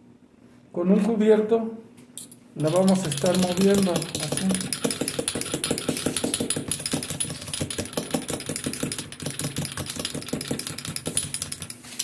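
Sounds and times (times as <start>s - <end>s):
fork clinking against glass jar: 2.2s - 7.6s.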